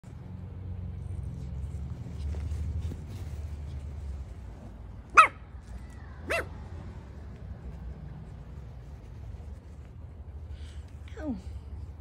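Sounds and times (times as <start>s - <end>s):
puppy barking: 5.1s - 5.5s, 6.2s - 6.6s.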